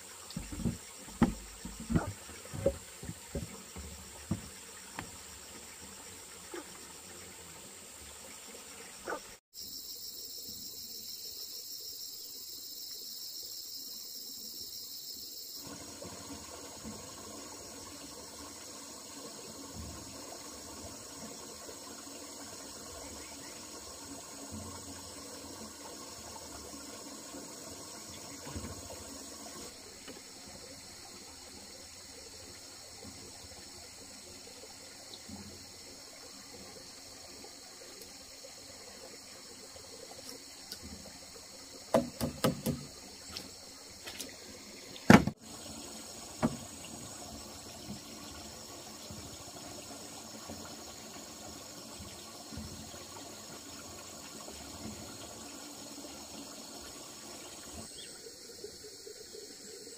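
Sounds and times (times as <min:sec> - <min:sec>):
insects chorus: 0:00.0 - 0:59.9
sharp knocks: 0:00.4 - 0:05.1, 0:41.9 - 0:42.9.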